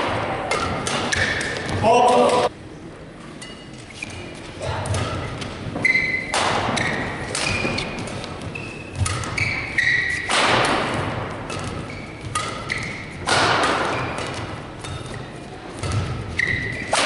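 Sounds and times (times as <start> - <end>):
rackets striking shuttlecock: 0.0 - 2.5, 6.3 - 17.0
shoes squeaking on court: 3.4 - 10.3, 11.4 - 13.2, 13.8 - 17.0.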